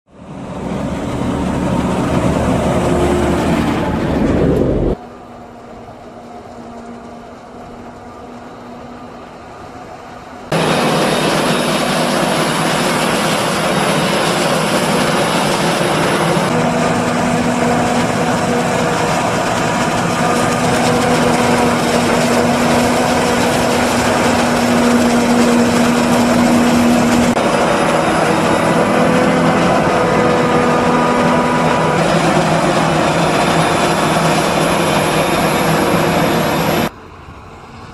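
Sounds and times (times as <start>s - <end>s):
tractor engine running: 0.1s - 5.0s, 10.5s - 37.9s
high machine whine: 0.1s - 37.9s
forage harvester chopping corn: 10.6s - 36.2s.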